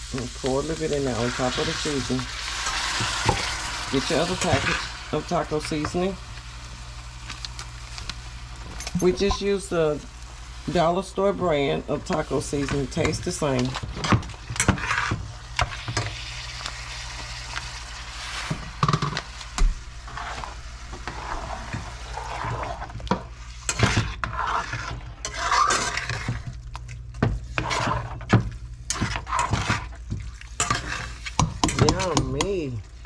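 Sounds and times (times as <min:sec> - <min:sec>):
meat sizzling in a skillet: 0:00.0 - 0:26.3
spatula scraping skillet: 0:00.1 - 0:06.1, 0:10.7 - 0:32.7
spoon stirring stew in pot: 0:20.1 - 0:32.7.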